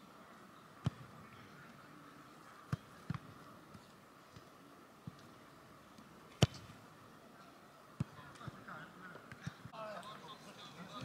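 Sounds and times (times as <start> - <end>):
faint background noise: 0.0 - 11.0
football kick thumps: 6.4 - 6.8.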